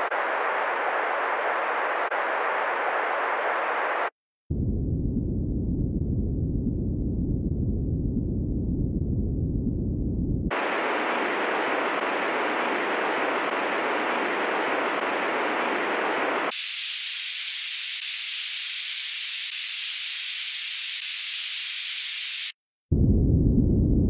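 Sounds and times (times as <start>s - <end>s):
band-limited test noise: 10.5s - 16.6s.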